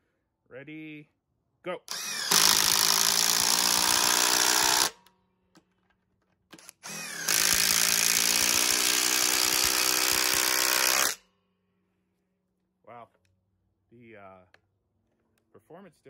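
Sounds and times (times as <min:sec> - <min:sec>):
impact driver hammering: 0:01.9 - 0:05.1, 0:06.5 - 0:11.2.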